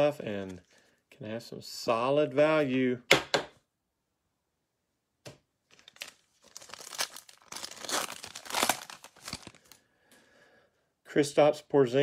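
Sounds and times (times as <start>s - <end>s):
foil wrapper tearing and crinkling: 5.7s - 9.8s.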